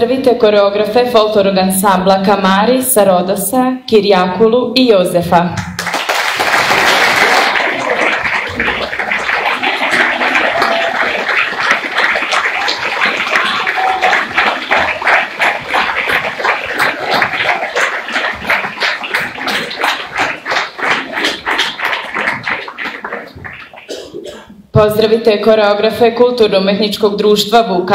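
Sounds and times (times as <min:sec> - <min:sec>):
rhythmic clapping in time: 0:05.6 - 0:24.5
audience applause: 0:05.8 - 0:24.3.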